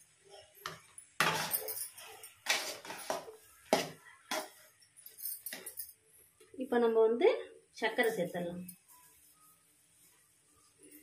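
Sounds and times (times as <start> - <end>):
ladle scraping metal pan: 2.4 - 3.4.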